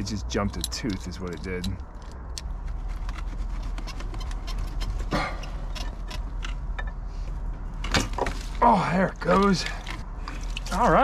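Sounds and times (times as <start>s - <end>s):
metallic clicks and clanks: 0.0s - 7.0s.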